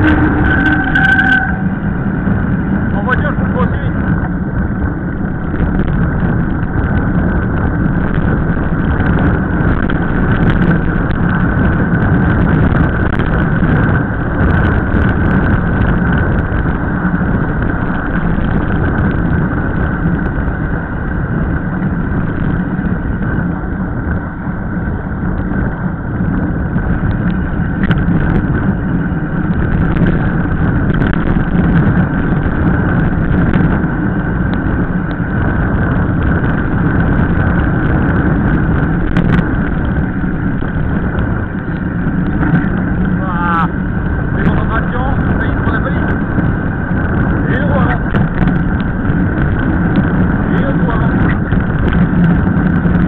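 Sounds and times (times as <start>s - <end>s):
bike tyres on asphalt: 0.0s - 53.0s
wind on microphone: 0.0s - 53.0s
bike clicks and rattles: 2.5s - 53.0s.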